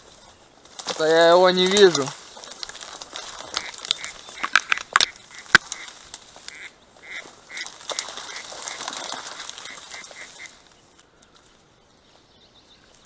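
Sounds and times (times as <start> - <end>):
dry reeds rustling and cracking: 0.0 - 13.0
duck quacking: 3.5 - 5.9, 6.5 - 9.0, 9.6 - 10.6.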